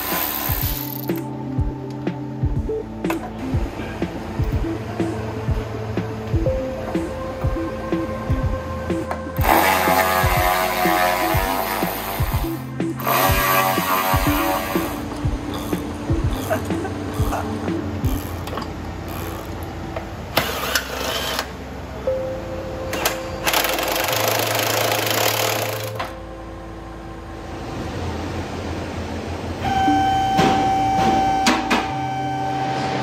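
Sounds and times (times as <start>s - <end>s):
background music with held notes: 0.0s - 19.3s, 29.5s - 33.0s
power tool noise: 9.4s - 12.3s, 13.0s - 15.8s, 23.5s - 26.1s.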